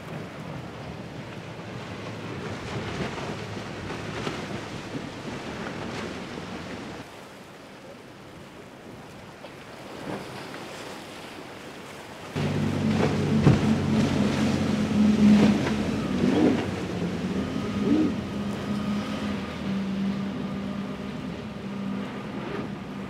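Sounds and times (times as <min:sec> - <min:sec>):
boat engine drone: 0:00.0 - 0:07.0, 0:12.1 - 0:23.0.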